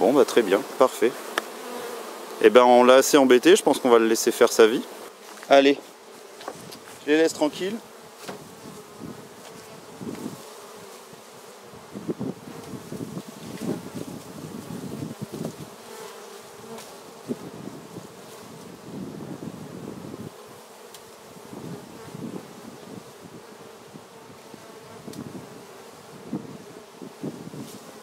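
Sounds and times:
honeybees buzzing: 0.0s - 28.0s
knock on wooden hive box: 8.2s - 8.6s.

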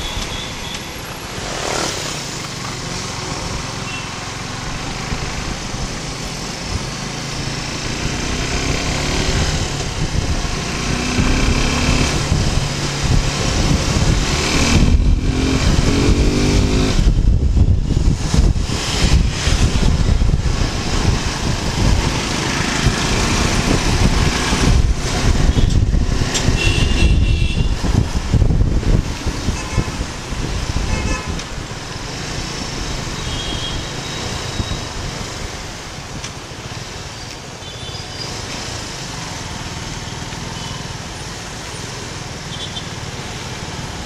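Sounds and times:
motorcycle engine rumbling: 0.0s - 36.9s
wind rush on microphone: 4.6s - 36.8s
car horn toots: 26.6s - 27.8s.

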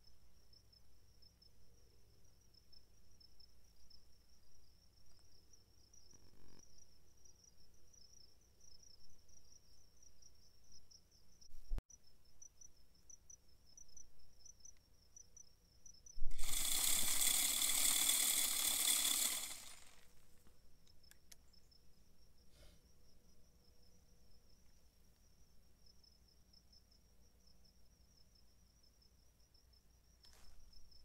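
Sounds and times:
insects trilling: 13.8s - 20.2s
feeder spinner throwing feed: 16.3s - 20.2s.

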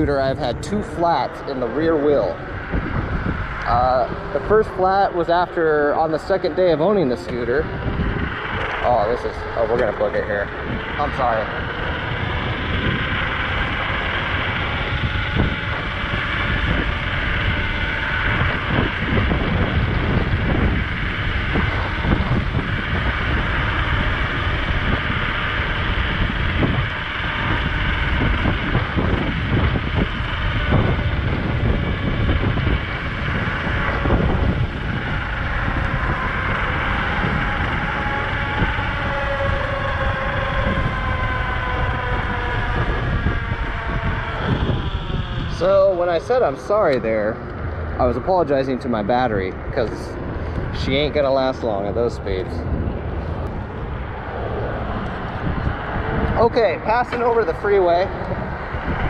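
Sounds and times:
electric scooter motor whine: 0.0s - 59.0s
wind rush over microphone: 0.0s - 59.0s.

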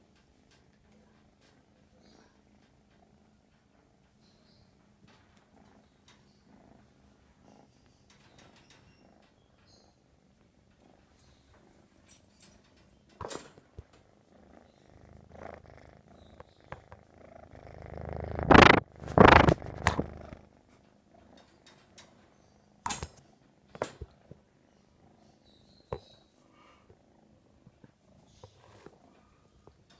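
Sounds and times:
kitten purring: 1.0s - 12.1s, 13.4s - 22.0s
fur rubbing against microphone: 18.1s - 20.4s.

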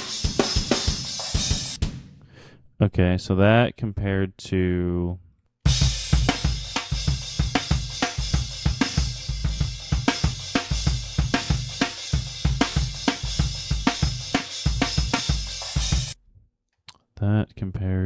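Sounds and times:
hi-hat and cymbals: 0.0s - 2.1s, 5.7s - 16.2s
kick and snare drum beat: 0.0s - 2.2s, 5.7s - 16.2s.

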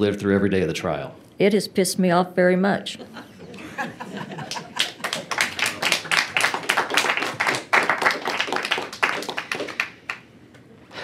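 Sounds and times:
group applause: 4.3s - 10.3s.

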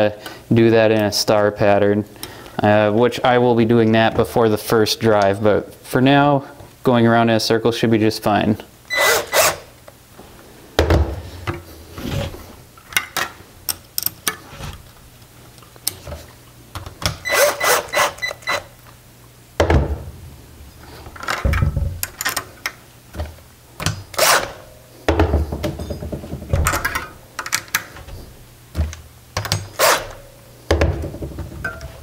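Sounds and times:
cordless drill running: 8.9s - 9.6s.

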